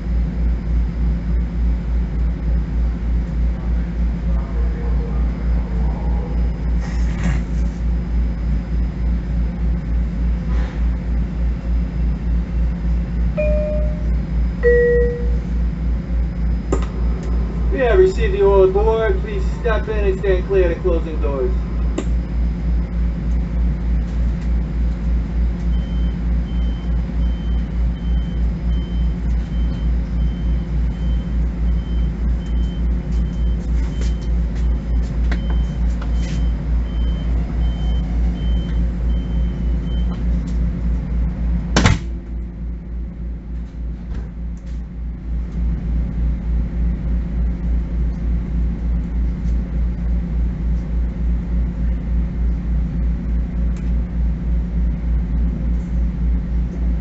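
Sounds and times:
railcar interior hum: 0:00.0 - 0:57.0
high beeping: 0:13.4 - 0:15.4.

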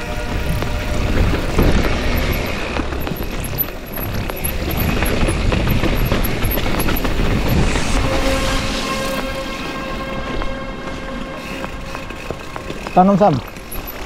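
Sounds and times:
wind on microphone: 0:00.0 - 0:12.0
bike tyres rumbling on dirt: 0:00.0 - 0:14.0
chain and frame rattling: 0:01.2 - 0:07.3, 0:11.8 - 0:14.0.

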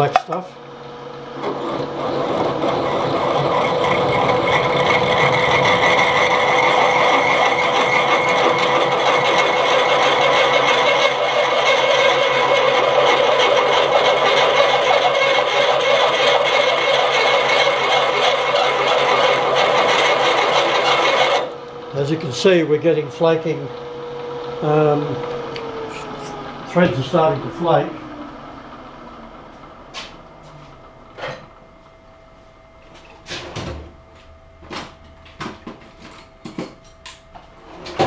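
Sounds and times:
milling machine hum: 0:00.0 - 0:38.0
drill cutting metal: 0:01.4 - 0:28.0.

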